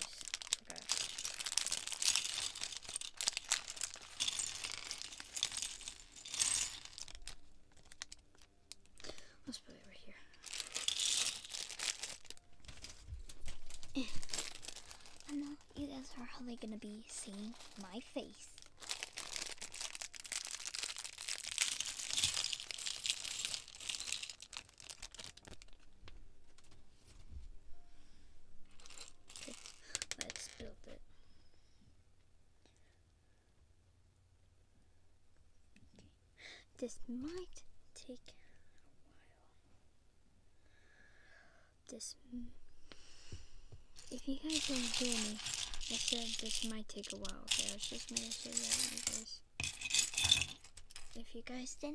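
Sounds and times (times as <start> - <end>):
plastic bag crinkling: 0.0 - 9.3, 10.3 - 26.0, 28.7 - 30.8, 44.0 - 51.3.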